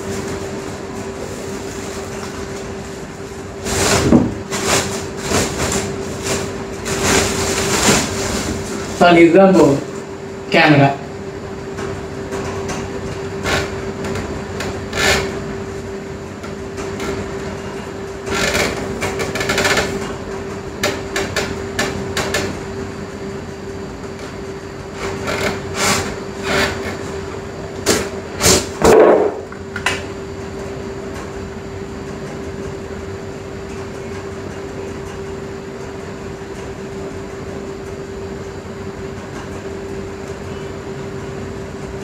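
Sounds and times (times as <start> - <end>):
steady hum: 0.0 - 42.0.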